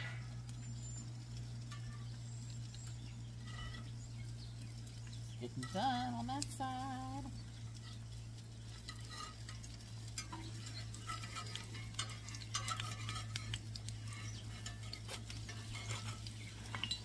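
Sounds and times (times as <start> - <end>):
bread crackling in oil: 0.0 - 17.0
steady low hum: 0.0 - 17.0
metal tongs scraping pan: 3.3 - 4.1, 7.5 - 17.0.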